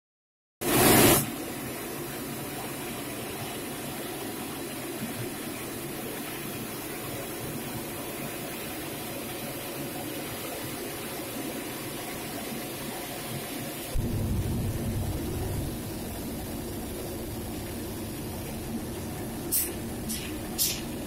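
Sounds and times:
oil burner rushing: 13.9s - 21.0s
blower motor humming: 14.0s - 21.0s.

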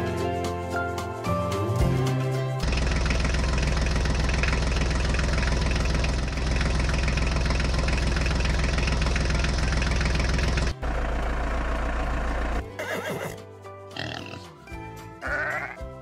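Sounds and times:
tractor engine idling: 2.6s - 13.2s.

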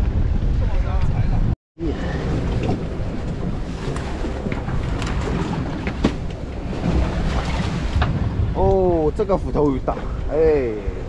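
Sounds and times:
boat engine low rumble: 0.0s - 11.0s
wind on microphone: 0.0s - 11.0s.

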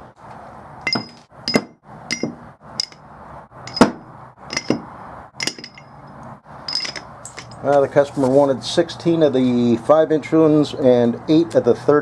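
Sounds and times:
metal rollers clinking: 0.9s - 3.0s, 3.7s - 7.8s.

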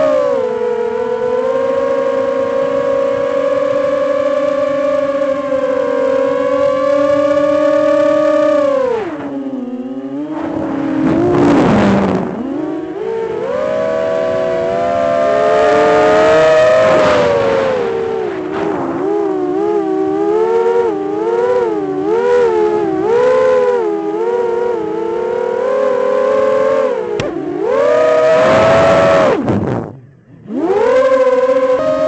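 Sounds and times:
drone motors whining: 0.0s - 32.0s
rushing air noise: 16.1s - 19.3s.

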